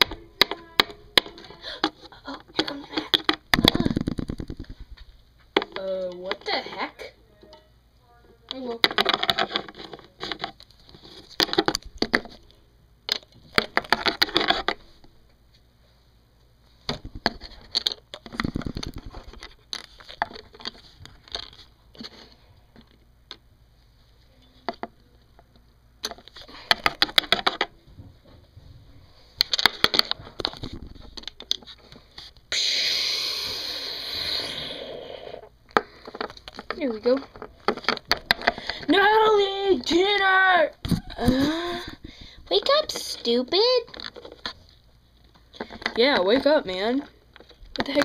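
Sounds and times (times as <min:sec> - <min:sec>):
steady hiss: 0:32.5 - 0:35.5.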